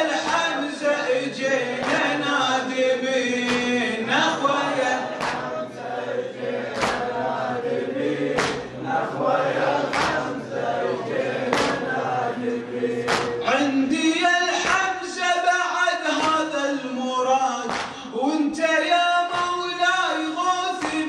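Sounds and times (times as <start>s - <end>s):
man and congregation chanting: 0.0s - 21.0s
sharp rhythmic strikes: 1.6s - 2.6s, 3.3s - 6.0s, 6.6s - 7.3s, 8.0s - 8.8s, 9.5s - 10.5s, 11.2s - 12.3s, 12.9s - 15.3s, 17.6s - 18.1s.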